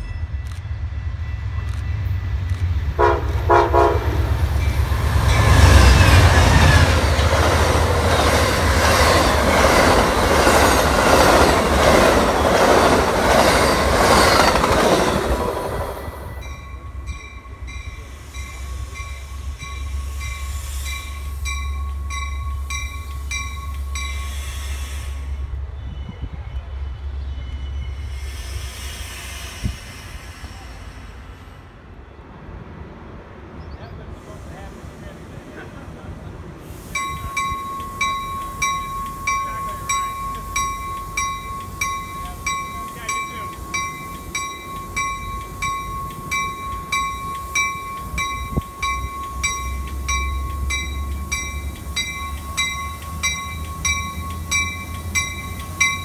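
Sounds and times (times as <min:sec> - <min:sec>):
diesel locomotive hum: 0:00.0 - 0:56.0
train rushing past: 0:00.0 - 0:56.0
train cars clattering over rails: 0:01.4 - 0:19.2, 0:35.5 - 0:56.0
train horn blast: 0:03.0 - 0:04.4.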